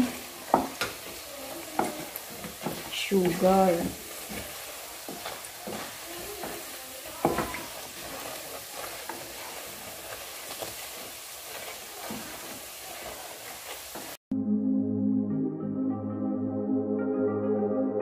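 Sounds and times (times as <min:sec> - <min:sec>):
dough sizzling in oil: 0:00.0 - 0:14.2
wooden spatula scraping a pan: 0:00.0 - 0:14.2.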